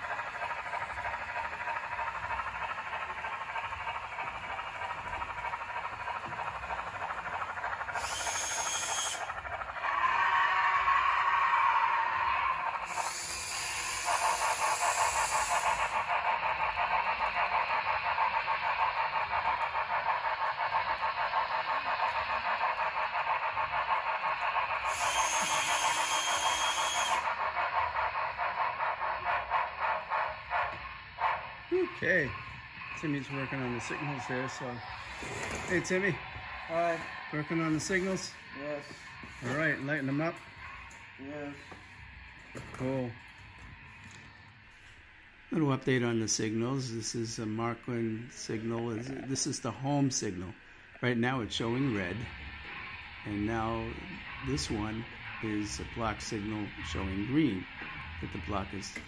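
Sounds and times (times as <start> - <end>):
model train steam chuffing: 0.0 - 59.0
high steam hiss: 7.8 - 42.0, 45.5 - 59.0.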